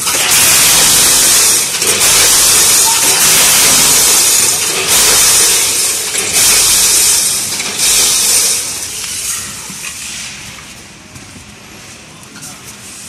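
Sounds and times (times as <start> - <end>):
weigher metallic rattling hiss: 0.1 - 9.4.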